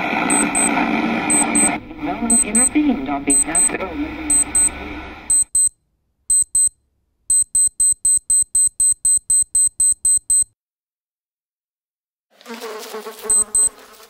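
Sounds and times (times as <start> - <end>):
high-pitched electronic beeps: 0.3 - 5.7, 6.3 - 6.7, 7.3 - 10.5, 13.3 - 13.7.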